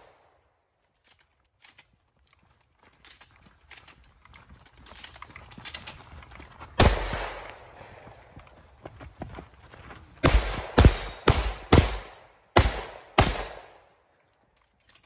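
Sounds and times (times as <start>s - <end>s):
gunshots with echo: 6.8s - 8.1s, 10.2s - 13.8s.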